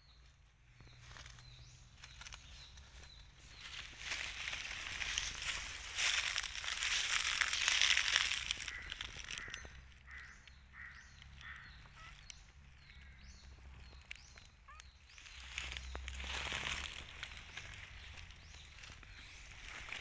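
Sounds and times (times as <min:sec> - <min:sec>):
dry leaves crunching and rustling: 0:00.2 - 0:20.0
bird calling short repeated notes: 0:08.4 - 0:12.3.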